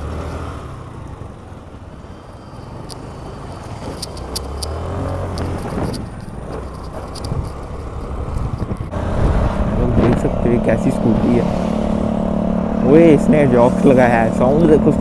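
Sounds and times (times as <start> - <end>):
motorcycles passing: 0.0 - 15.0
scooter engine and wind rumble: 0.0 - 15.0
clicks and rattles: 2.8 - 8.9.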